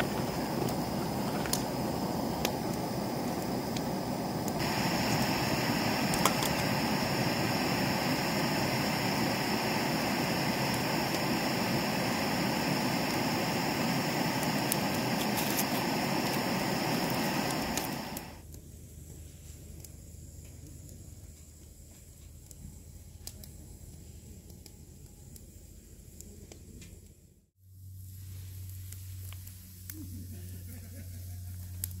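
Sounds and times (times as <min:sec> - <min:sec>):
fire rushing: 0:00.0 - 0:18.4
firewood popping and crackling: 0:00.0 - 0:18.4.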